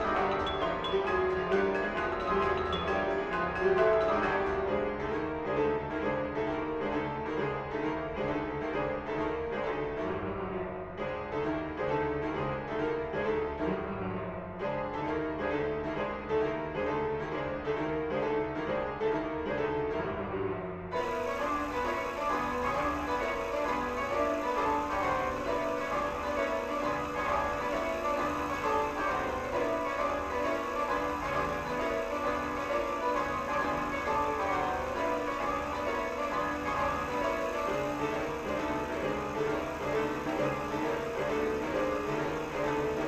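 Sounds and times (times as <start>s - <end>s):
keyboard playing pulsed notes: 21.0s - 43.0s.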